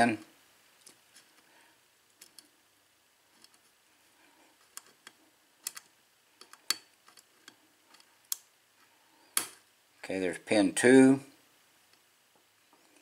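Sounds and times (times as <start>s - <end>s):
lock pick metallic clicks: 4.7s - 8.5s.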